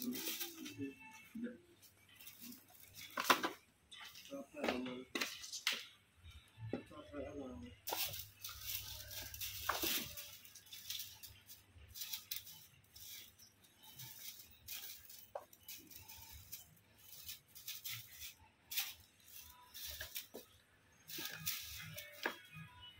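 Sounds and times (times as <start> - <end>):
kittens rustling broom bristles: 0.0 - 1.2, 1.8 - 3.5, 7.8 - 22.7.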